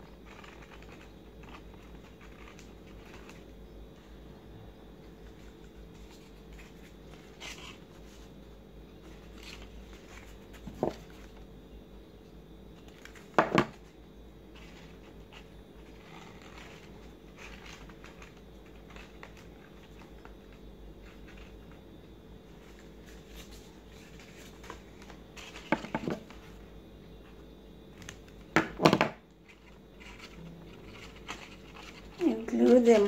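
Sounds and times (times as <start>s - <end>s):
paper rustling and ticks: 0.0s - 3.6s, 9.0s - 11.5s, 14.5s - 21.8s, 22.5s - 26.6s, 27.9s - 33.0s.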